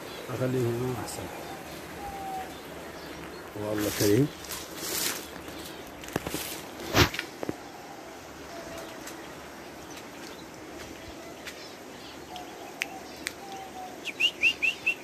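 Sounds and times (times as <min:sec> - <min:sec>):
faint bird chirps: 0:00.0 - 0:03.4, 0:07.6 - 0:15.0
bird wings fluttering: 0:03.2 - 0:07.6.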